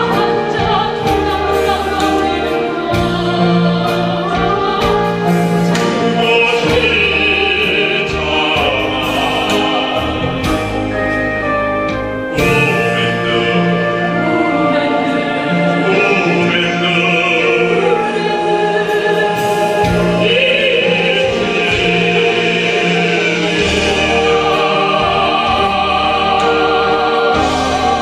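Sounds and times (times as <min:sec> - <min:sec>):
woman singing: 0:00.0 - 0:09.9
instrumental accompaniment: 0:00.0 - 0:28.0
man singing operatic style: 0:06.1 - 0:10.8, 0:12.3 - 0:14.4, 0:15.7 - 0:18.5, 0:20.2 - 0:26.6.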